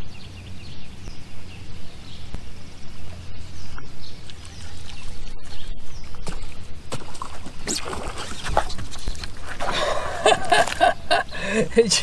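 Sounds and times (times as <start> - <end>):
water splashes: 2.4 - 11.2.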